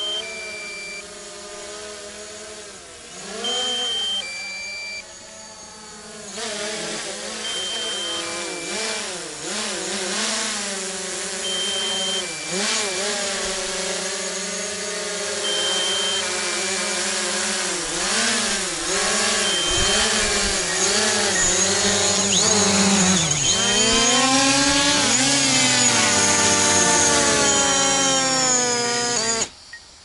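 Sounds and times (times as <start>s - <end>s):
two-tone warning beep: 0.0s - 1.0s, 3.4s - 5.2s, 7.4s - 8.9s, 11.4s - 13.2s, 15.4s - 16.4s, 19.1s - 24.4s
drone propellers whining: 0.0s - 29.8s.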